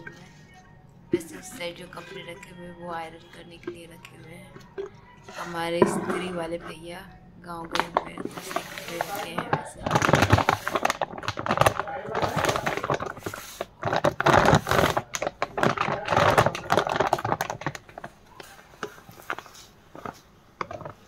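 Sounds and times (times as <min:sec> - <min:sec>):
plastic packet crinkling: 0:01.4 - 0:06.8, 0:07.6 - 0:21.0
granules pouring into a jar: 0:07.8 - 0:21.0.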